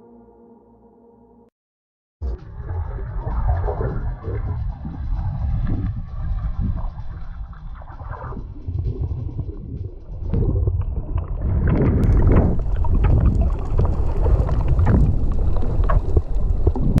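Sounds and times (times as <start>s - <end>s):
underwater rumble of moving water: 2.4s - 17.0s
crackling bubbles: 4.2s - 17.0s.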